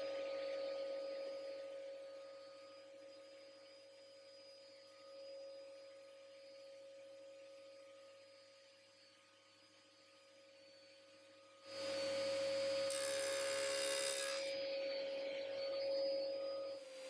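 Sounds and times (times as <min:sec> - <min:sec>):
steady high-pitched tone: 0:00.0 - 0:17.0
table saw cutting wood: 0:12.9 - 0:14.5.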